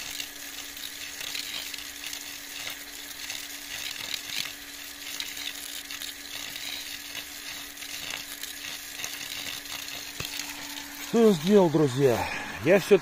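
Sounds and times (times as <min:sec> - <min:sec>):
water pouring from hose splashing: 0:00.0 - 0:12.9
low hum: 0:10.2 - 0:13.0.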